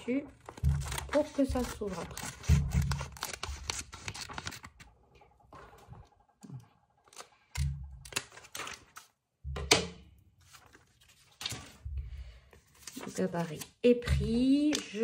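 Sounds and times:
scissors snipping paper: 0.4s - 4.9s, 13.0s - 15.0s
paper rustling: 0.4s - 5.0s, 8.0s - 9.2s, 10.4s - 11.9s, 12.5s - 15.0s.

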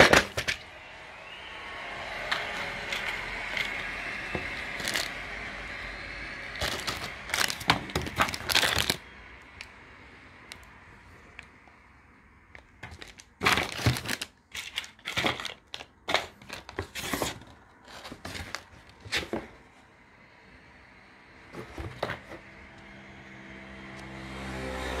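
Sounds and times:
low hum: 0.5s - 11.0s
plastic bags crinkling: 4.4s - 5.2s, 6.5s - 9.1s, 12.6s - 19.0s.

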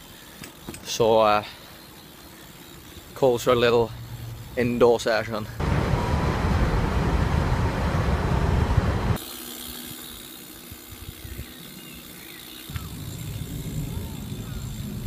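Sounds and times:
train rumbling: 5.6s - 9.2s
faint street ambience: 12.1s - 15.0s.

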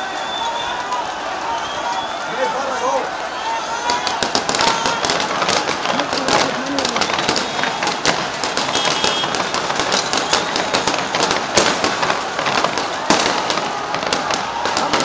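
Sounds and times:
large crowd noise: 0.0s - 15.0s
sharp cracks: 3.9s - 15.0s.

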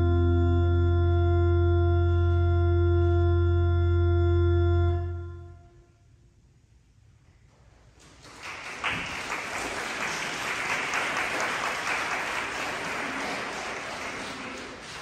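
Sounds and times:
audience applauding: 8.0s - 15.0s.

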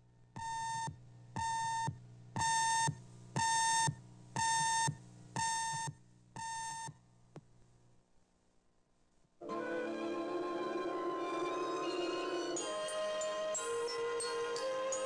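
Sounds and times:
faint low hum: 0.0s - 9.5s.

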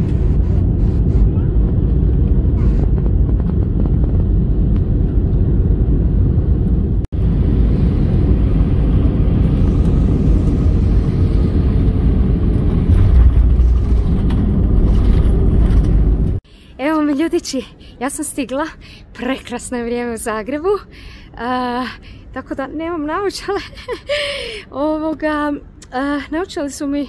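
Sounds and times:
engine rumble and rushing air: 0.0s - 16.9s.

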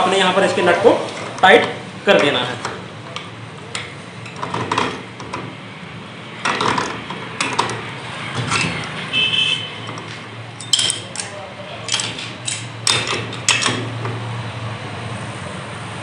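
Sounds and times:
metal tools clanking and scraping: 1.1s - 5.6s, 6.4s - 9.0s, 9.8s - 14.2s.

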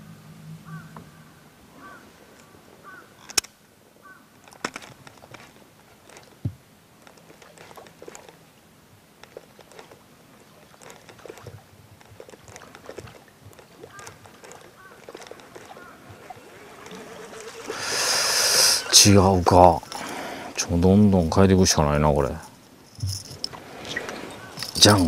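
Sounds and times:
faint bird calls: 0.5s - 3.4s, 4.0s - 4.3s, 13.7s - 19.1s, 23.7s - 24.6s
lure splashing on water: 9.2s - 20.6s, 23.0s - 25.0s.

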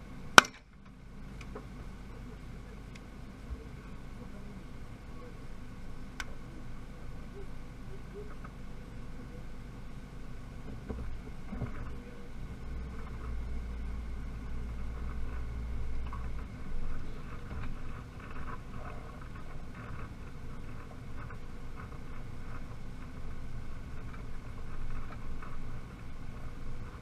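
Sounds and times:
truck engine and tyres rumbling: 0.0s - 27.0s
cab rattles and ticks: 14.5s - 27.0s.

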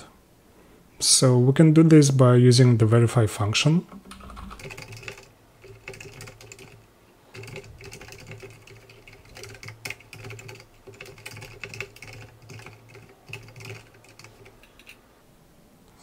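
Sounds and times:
computer keyboard typing: 4.0s - 15.0s.

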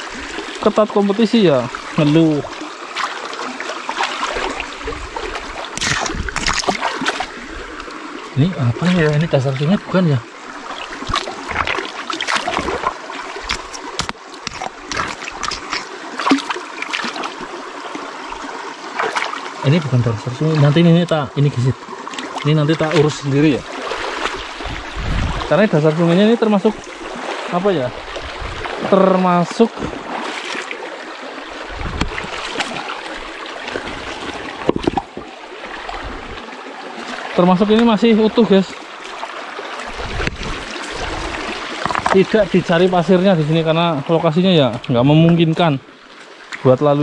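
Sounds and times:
shallow river water running: 0.0s - 47.0s
short splashes and knocks: 3.9s - 7.4s, 10.7s - 17.5s, 18.9s - 19.5s, 22.1s - 25.6s, 26.6s - 30.8s, 31.7s - 36.4s, 39.0s - 42.7s.

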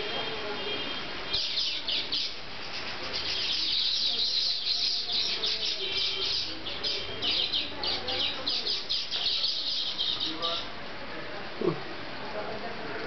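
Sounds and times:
birds chirping rapidly: 0.9s - 10.8s.

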